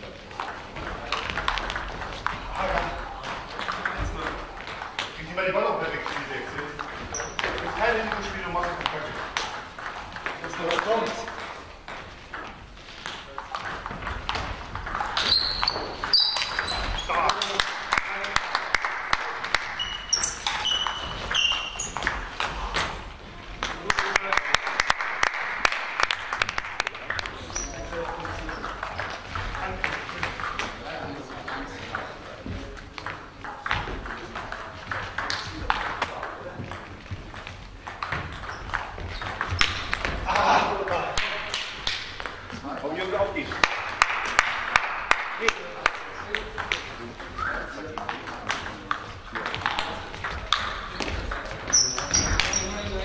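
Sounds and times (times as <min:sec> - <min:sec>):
table tennis balls clicking: 0:00.0 - 0:53.0
high-pitched squeaks: 0:15.2 - 0:17.2, 0:19.8 - 0:22.2, 0:51.7 - 0:52.9.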